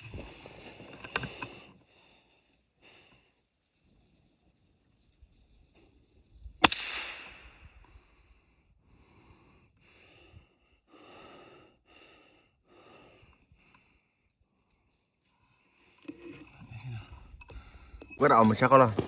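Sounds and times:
rifle shot: 6.6 - 7.5.

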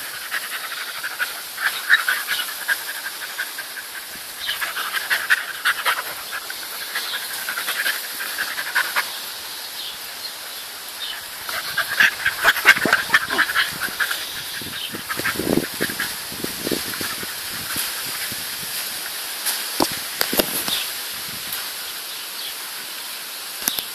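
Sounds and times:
dogs panting: 0.0 - 9.6, 11.0 - 18.4.

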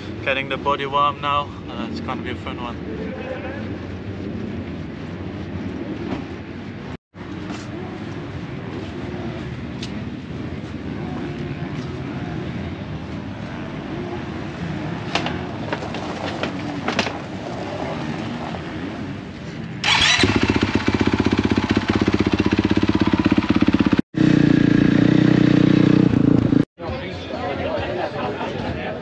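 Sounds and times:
motocross bike engine: 4.2 - 26.6.

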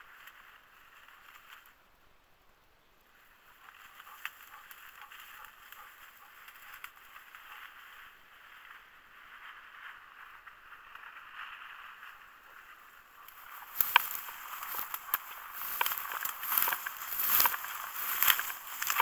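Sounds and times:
rustling in dry grass: 0.0 - 2.3, 3.0 - 19.0
small snaps: 13.2 - 19.0.

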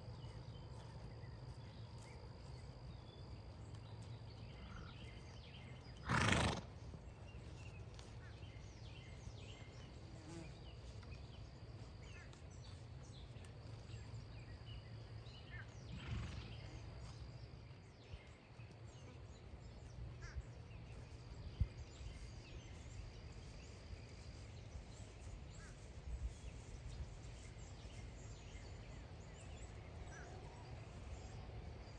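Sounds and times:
horse snorting: 6.0 - 6.7.

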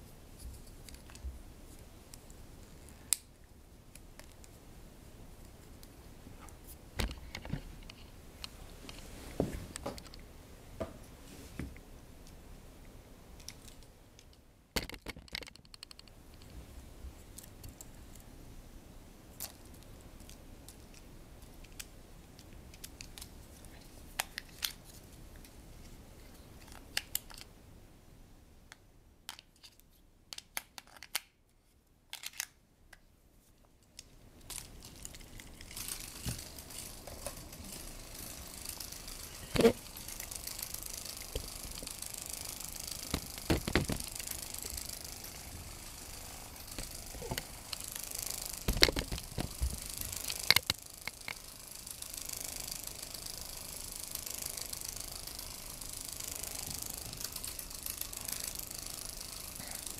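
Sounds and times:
small motor whirring: 35.1 - 59.9.

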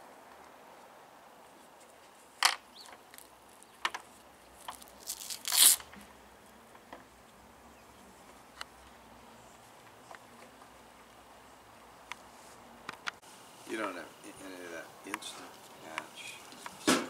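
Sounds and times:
small ticks and rustles: 0.3 - 14.0, 15.0 - 16.8
hook-and-loop strap ripping: 2.4 - 6.0.

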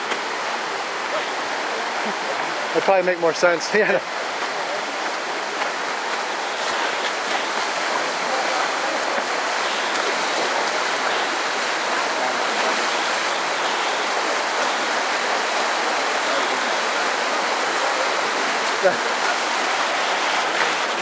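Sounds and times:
river rushing over rocks: 0.0 - 21.0.

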